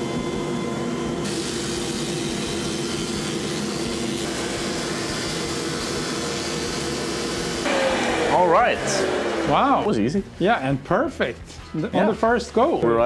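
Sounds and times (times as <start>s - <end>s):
planer machine hum: 0.0s - 9.9s
hiss of cutting and dust extraction: 1.2s - 9.9s.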